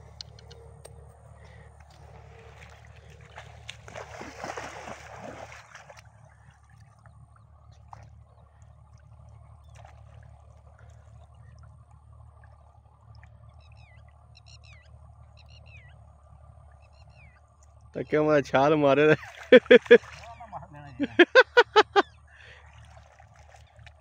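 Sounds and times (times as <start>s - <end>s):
lake water splashing: 0.0s - 14.3s, 17.8s - 24.0s
faint water trickle: 0.0s - 21.2s, 22.0s - 24.0s.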